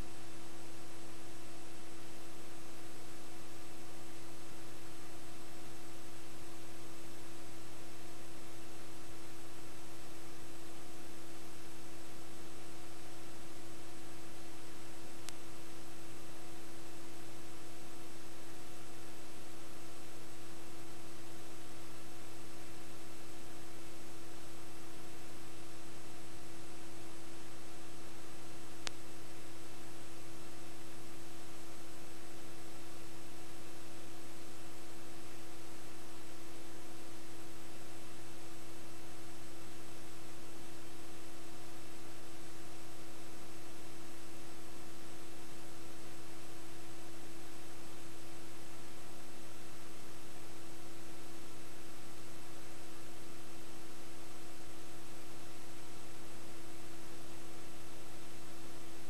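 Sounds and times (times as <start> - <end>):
electronic hum and hiss: 0.0 - 59.0
faint tick: 15.2 - 15.5, 28.8 - 29.1.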